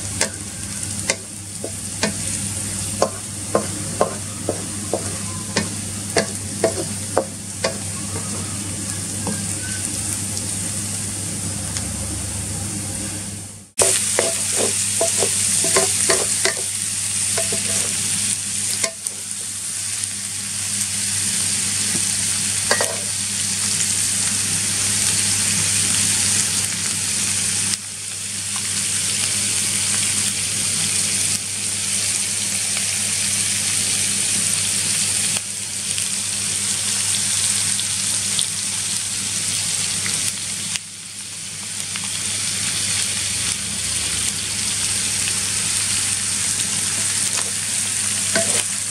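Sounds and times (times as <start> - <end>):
fish sizzling in hot oil: 0.0 - 12.0, 13.7 - 48.9
utensil clinking on wok: 13.8 - 16.7, 17.4 - 18.0, 22.7 - 23.1, 48.3 - 48.7.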